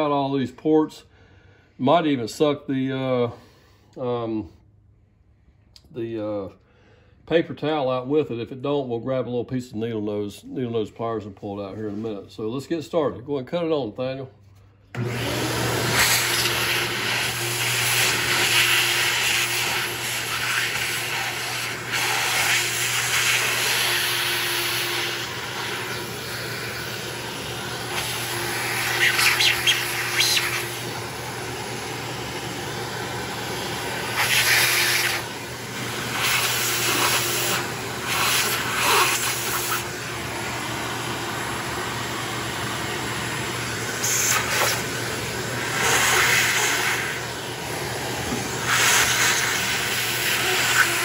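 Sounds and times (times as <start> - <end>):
shop vac running: 10.0 - 51.0
vacuum nozzle sucking dirt: 14.9 - 51.0.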